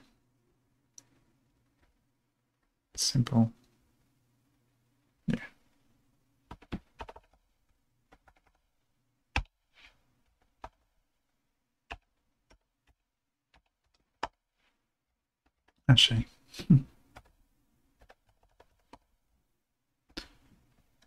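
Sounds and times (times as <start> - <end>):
typing on a computer keyboard: 6.5 - 7.5, 8.1 - 8.6, 9.4 - 9.6, 10.3 - 10.9, 11.9 - 14.4, 17.1 - 17.4, 18.0 - 19.1.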